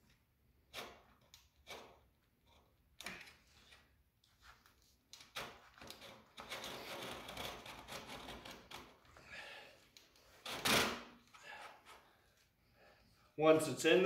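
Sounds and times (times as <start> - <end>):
screen door sill scraping: 5.4 - 8.9.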